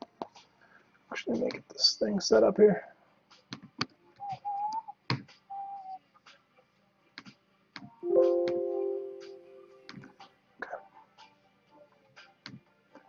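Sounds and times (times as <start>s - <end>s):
held musical chord: 8.0s - 9.9s.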